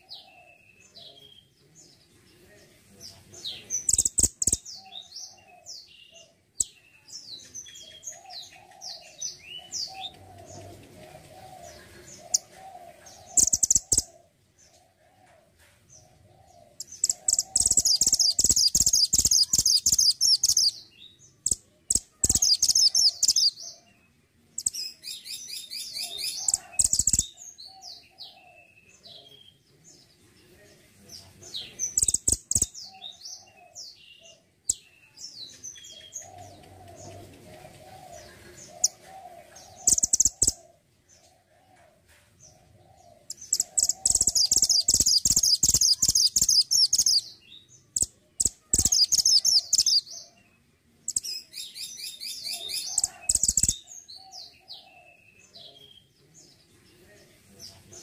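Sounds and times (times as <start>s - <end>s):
songbird twittering: 3.5s - 14.2s, 16.5s - 24.0s, 24.6s - 29.4s, 31.6s - 39.0s, 39.6s - 40.7s, 43.2s - 56.0s.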